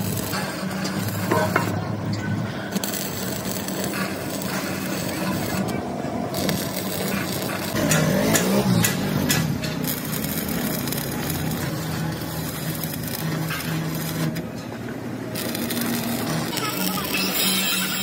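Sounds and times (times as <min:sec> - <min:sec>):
welding arc crackling and sizzling: 0:00.0 - 0:18.0.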